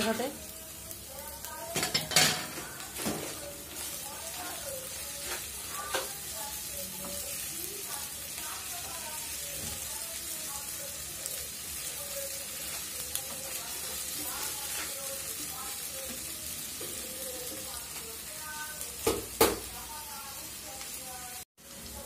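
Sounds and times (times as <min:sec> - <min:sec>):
onions sizzling in hot oil: 0:00.0 - 0:22.0
spatula stirring in pan: 0:01.8 - 0:09.8, 0:11.2 - 0:17.7.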